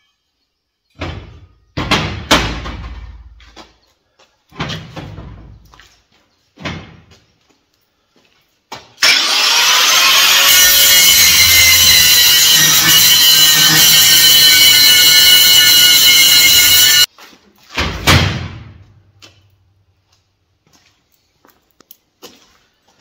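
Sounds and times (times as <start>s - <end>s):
angle grinder wire brush whirring: 9.0s - 17.1s.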